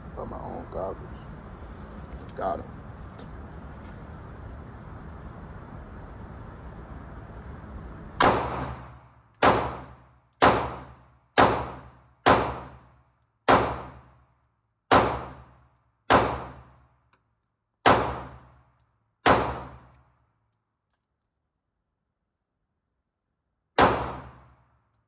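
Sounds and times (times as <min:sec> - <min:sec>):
pistol shots with echo: 0:08.2 - 0:12.9, 0:13.5 - 0:14.2, 0:14.9 - 0:15.5, 0:16.1 - 0:16.8, 0:17.8 - 0:18.6, 0:19.2 - 0:19.9, 0:23.8 - 0:24.6.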